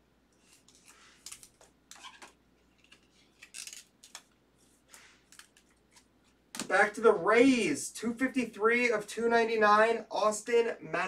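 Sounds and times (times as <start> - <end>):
plastic card sleeves rustling: 0.4 - 6.7.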